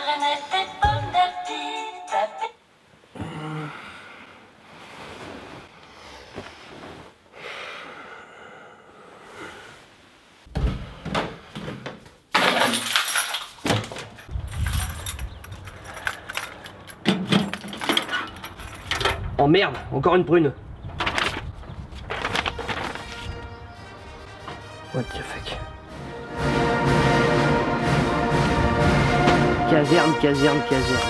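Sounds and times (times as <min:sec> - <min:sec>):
bedding rustling: 0:04.6 - 0:07.4
keys jangling: 0:14.4 - 0:19.0
metal mailbox opening: 0:16.2 - 0:19.4.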